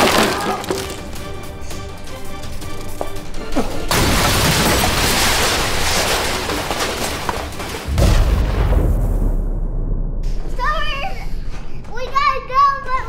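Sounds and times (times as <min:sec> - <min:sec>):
background music: 0:00.0 - 0:13.0
dense rushing crash-like noise: 0:07.9 - 0:11.5
heavy deep boom: 0:07.9 - 0:11.5.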